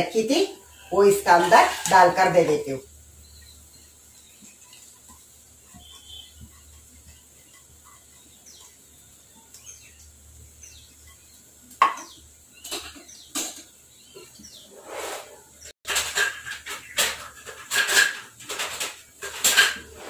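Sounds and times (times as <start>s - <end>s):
faint bird chirps: 3.2s - 4.8s, 5.7s - 14.8s
pots and dishes clinking: 11.8s - 14.4s, 15.9s - 20.0s.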